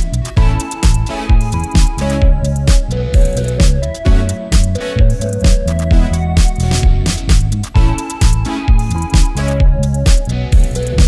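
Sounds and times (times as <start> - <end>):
electronic beat: 0.0 - 11.0.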